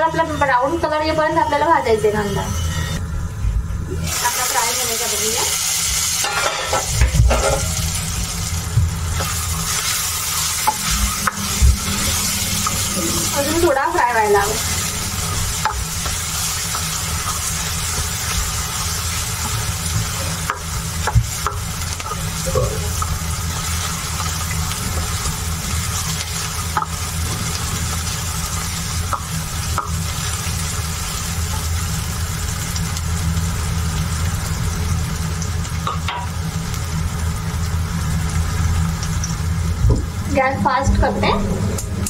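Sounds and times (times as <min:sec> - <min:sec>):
onions sizzling in oil: 0:03.9 - 0:42.0
low hum: 0:06.3 - 0:29.8.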